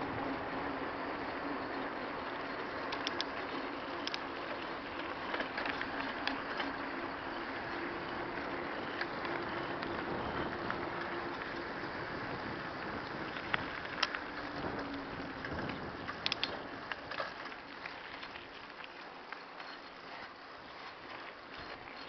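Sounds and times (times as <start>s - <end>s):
faint steady hum: 0.0s - 22.0s
tyre noise on asphalt: 0.0s - 22.0s
light clicks and rattles: 2.8s - 6.9s, 13.0s - 20.2s.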